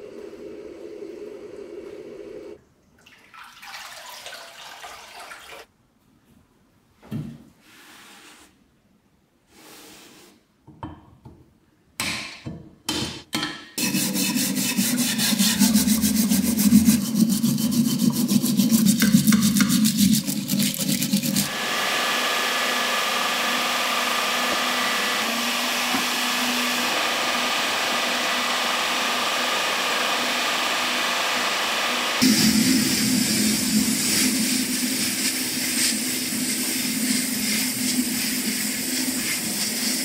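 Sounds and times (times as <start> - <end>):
running tap water: 3.0 - 5.7, 13.9 - 21.5, 32.2 - 40.0
rubbing and wiping strokes: 7.6 - 8.6, 13.8 - 21.5, 33.3 - 40.0
wire brush scrubbing cast iron: 13.8 - 21.6, 32.2 - 40.0
stick stirring foamy liquid: 13.8 - 40.0.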